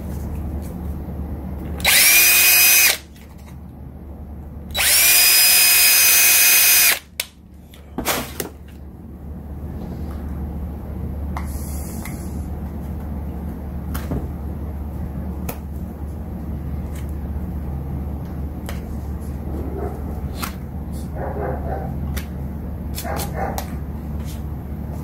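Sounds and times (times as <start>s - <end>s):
steady low hum: 0.0s - 25.0s
dog barking: 21.1s - 22.0s, 23.0s - 23.7s.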